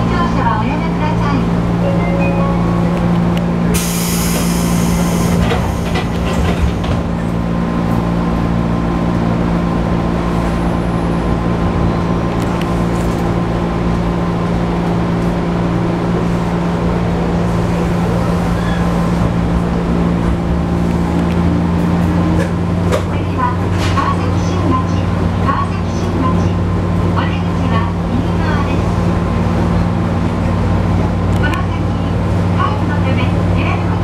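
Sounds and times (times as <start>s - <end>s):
train equipment hum: 0.0s - 34.0s
train doors closing with air hiss: 3.7s - 7.2s.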